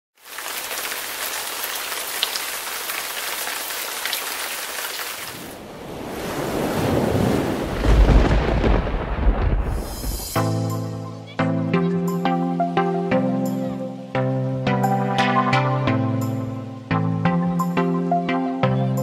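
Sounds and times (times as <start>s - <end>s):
deep rumble with heavy booms: 7.8s - 10.4s.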